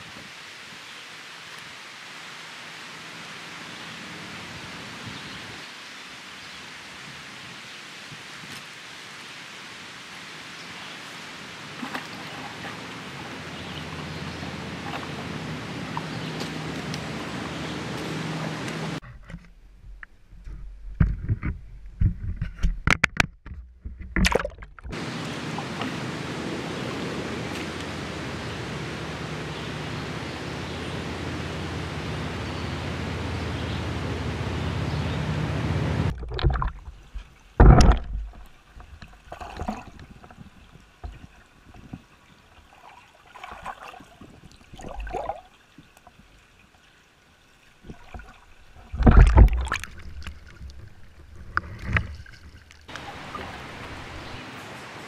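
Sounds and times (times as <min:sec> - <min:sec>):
camera housing knocks and thumps: 0:20.9 - 0:25.0, 0:37.6 - 0:38.4.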